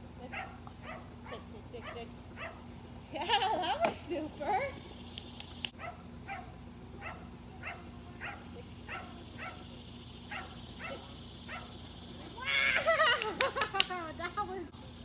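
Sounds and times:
dog barking: 0.3s - 2.6s, 5.8s - 9.7s, 10.3s - 11.8s.

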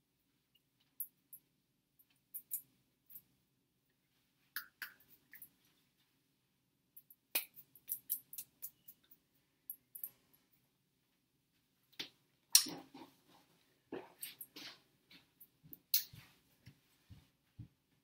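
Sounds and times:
hands clicking and slapping: 7.3s - 9.2s.

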